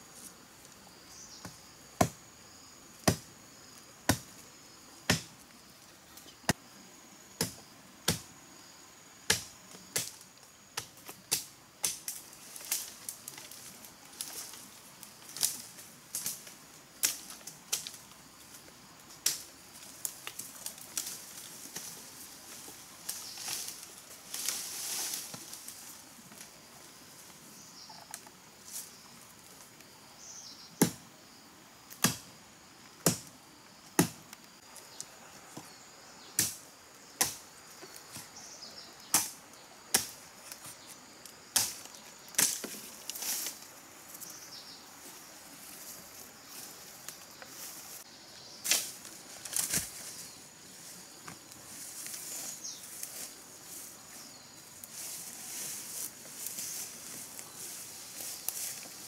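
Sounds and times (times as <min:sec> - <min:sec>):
blade chopping wood: 0:03.0 - 0:03.3, 0:05.1 - 0:05.3, 0:33.0 - 0:33.3, 0:34.0 - 0:34.2.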